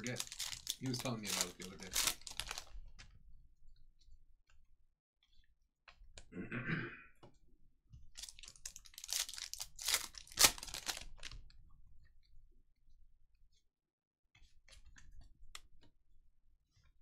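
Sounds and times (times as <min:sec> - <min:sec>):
foil pack crinkling and tearing: 0:00.0 - 0:02.7, 0:08.2 - 0:11.4.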